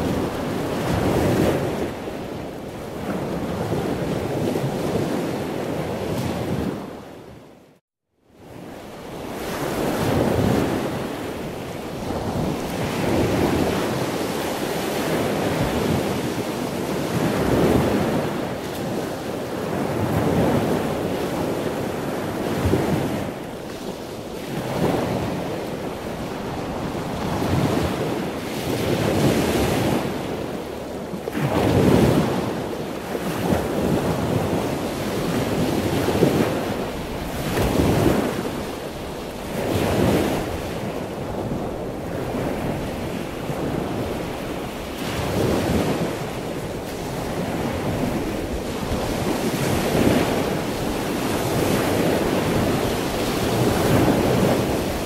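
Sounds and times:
wind buffeting microphone: 0.0s - 7.6s, 8.4s - 55.0s.

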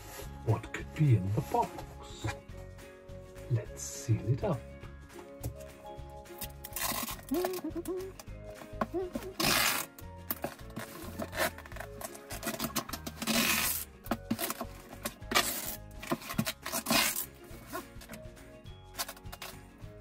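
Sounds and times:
background music: 0.0s - 20.0s
packing tape pulled off roll: 6.4s - 8.0s, 9.2s - 18.2s, 18.9s - 19.6s.

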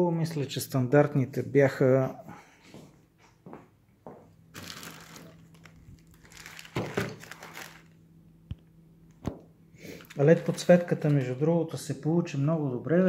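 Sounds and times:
plastic bag crinkling: 4.5s - 8.0s, 9.9s - 11.4s.

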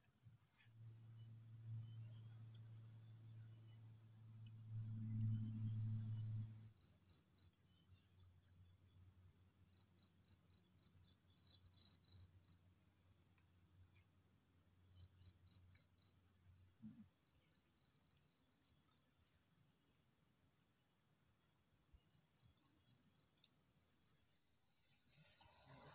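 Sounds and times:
low steady hum: 0.0s - 10.0s
faint insect chirping: 0.0s - 25.9s.

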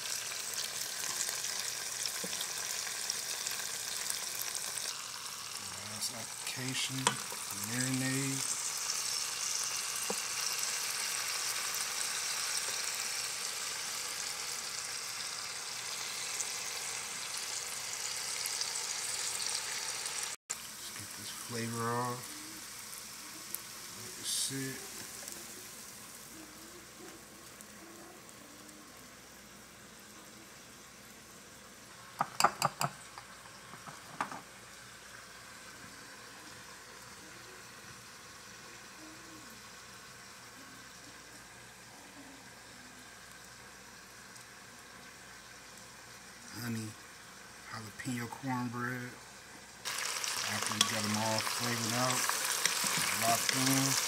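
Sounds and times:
faint steady hiss: 0.0s - 54.0s
meat sizzling in a pot: 0.0s - 54.0s
marinade pouring: 0.2s - 12.7s, 49.9s - 54.0s
spoon clinking against glass bowl: 32.2s - 33.0s.

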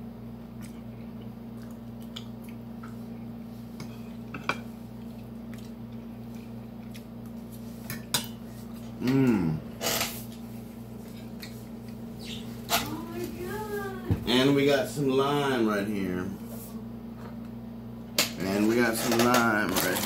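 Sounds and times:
steady low hum: 0.0s - 20.0s
chewing: 0.6s - 4.3s, 4.9s - 7.5s.

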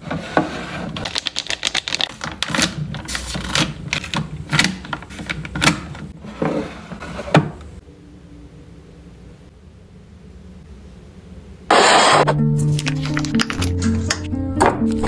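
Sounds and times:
plastic packets crinkling: 1.0s - 5.6s, 12.7s - 13.8s.

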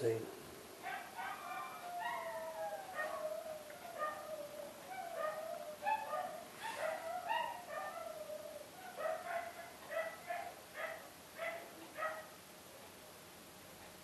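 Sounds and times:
dog howling and whining: 0.8s - 12.1s.

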